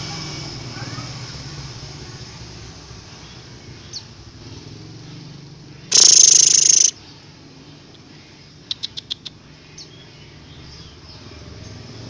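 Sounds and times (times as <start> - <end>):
low engine-like hum: 0.0 - 12.0
high chirp: 5.9 - 7.0.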